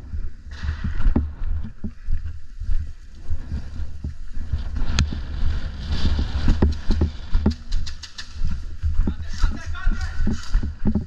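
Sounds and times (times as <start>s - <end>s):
footsteps through dry grass: 0.0s - 11.0s
wind buffeting microphone: 0.0s - 11.0s
sharp click: 7.4s - 8.6s.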